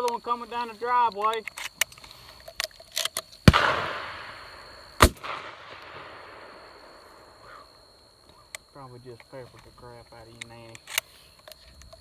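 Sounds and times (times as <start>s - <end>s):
shotgun shots with echo: 3.4s - 6.7s.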